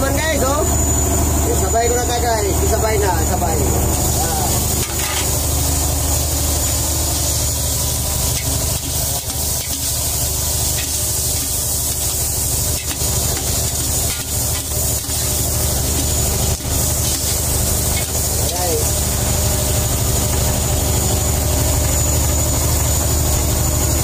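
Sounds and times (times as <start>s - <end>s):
low boat engine drone: 0.0s - 24.0s
light sizzle: 3.8s - 20.7s
spatula scraping a metal pot: 8.3s - 18.6s.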